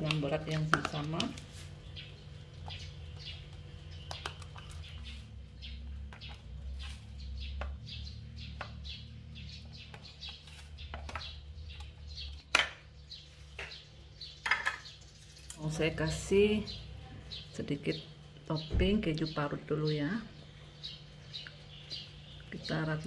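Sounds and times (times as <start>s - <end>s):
small birds chirping: 0.0s - 23.0s
steady low hum: 0.0s - 23.0s.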